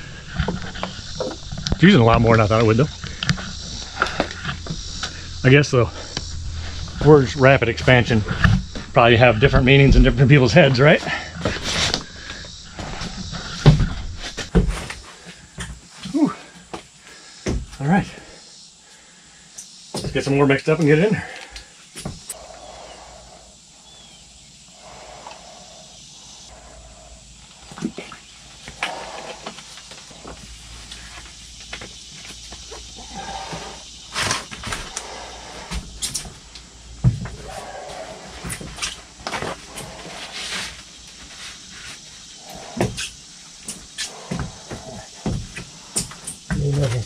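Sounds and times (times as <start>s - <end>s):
soft hissing: 22.2s - 31.5s.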